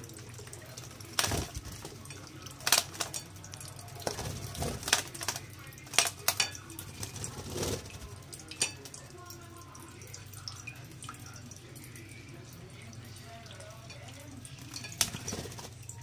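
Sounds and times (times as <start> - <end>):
birds splashing in glass dish: 0.0 - 16.0
faint trickle of water: 0.0 - 16.0.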